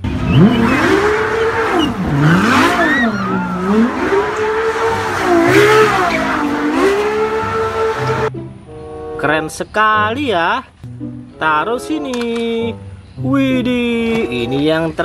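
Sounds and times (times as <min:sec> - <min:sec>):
sports car engine revving: 0:00.0 - 0:08.3
tyres squealing: 0:00.0 - 0:08.3.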